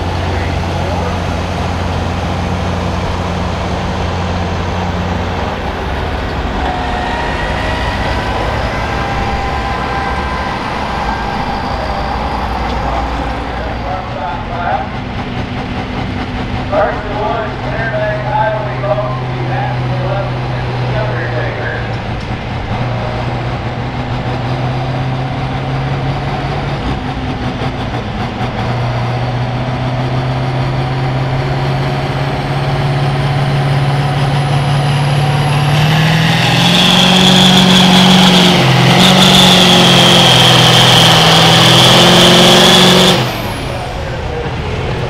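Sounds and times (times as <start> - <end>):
tractor diesel engine under load: 0.0 - 45.0
high whistle: 6.5 - 14.0, 35.4 - 41.4.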